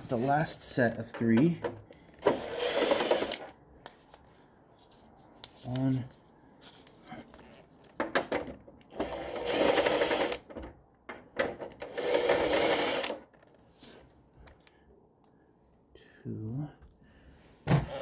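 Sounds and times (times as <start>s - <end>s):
cordless drill whining and rattling: 2.1s - 3.6s, 8.8s - 10.6s, 11.6s - 13.6s, 17.8s - 18.0s
sharp clicks of drill bit: 2.2s - 3.5s, 11.8s - 13.2s.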